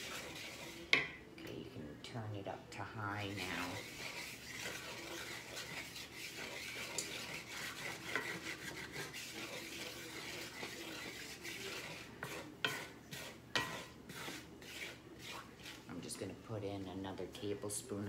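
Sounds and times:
spatula scraping a skillet: 0.0 - 1.5, 3.0 - 17.9
spatula knocking against pan: 0.9 - 1.2, 12.2 - 12.9, 13.5 - 13.9.

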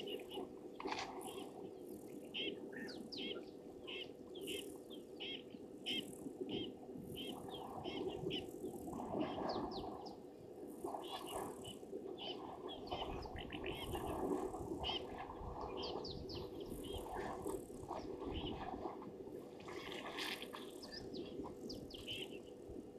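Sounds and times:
birds chirping: 0.0 - 10.2, 11.0 - 14.2, 14.8 - 17.1, 20.6 - 22.5
faint hum: 0.0 - 22.9.

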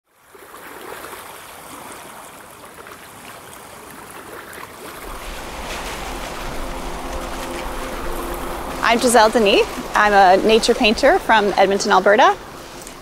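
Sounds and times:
stream water rushing: 0.4 - 13.0
low rumble: 5.0 - 13.0.

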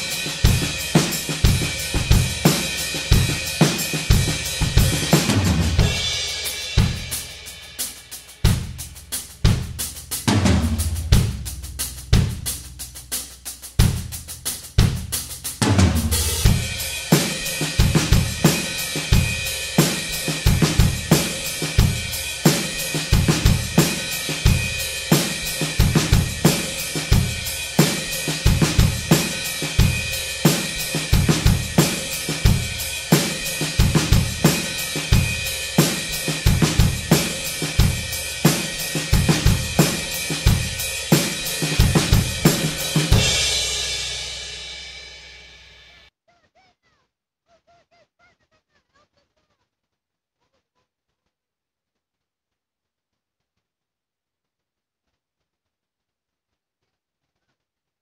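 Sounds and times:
cymbals: 0.0 - 46.1
drum kit beat: 0.0 - 46.1.

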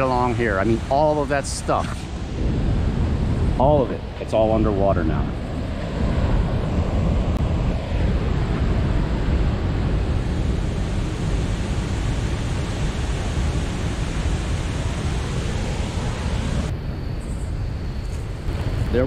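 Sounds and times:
water rushing over dam spillway: 0.0 - 2.2, 10.2 - 16.7.

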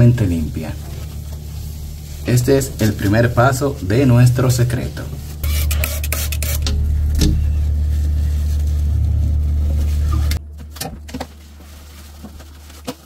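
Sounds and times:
loud low rumble: 0.0 - 5.4, 6.4 - 11.1
short scraping strokes: 5.2 - 10.4.

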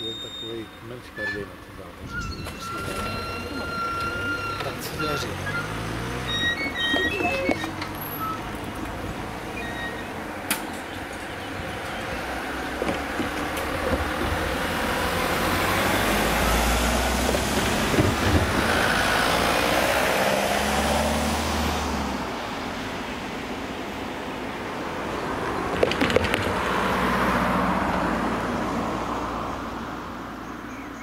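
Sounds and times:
van passing close by: 1.6 - 31.0
car passing: 2.6 - 31.0.

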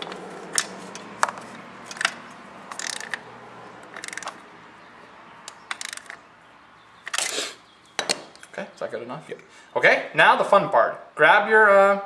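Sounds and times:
ratchet wrench clicking: 0.6 - 3.2, 3.8 - 4.4, 5.4 - 6.2.

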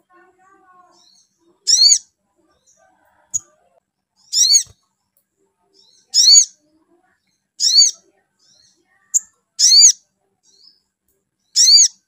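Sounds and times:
sunbird calling: 0.9 - 2.0, 4.3 - 4.7, 5.8 - 6.5, 7.6 - 10.7, 11.5 - 12.0.

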